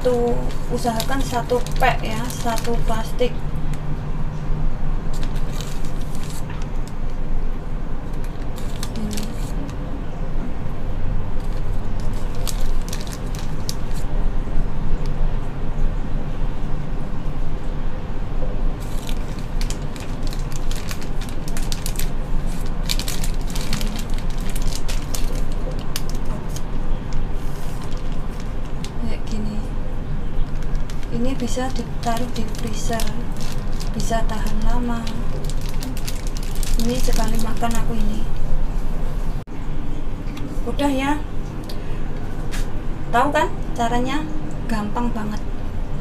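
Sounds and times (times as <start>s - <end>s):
plastic bag crinkling: 0.0s - 3.8s, 5.1s - 7.1s, 8.0s - 9.8s, 11.4s - 14.1s, 18.8s - 29.1s, 30.4s - 38.4s
steady low hum: 0.0s - 46.0s.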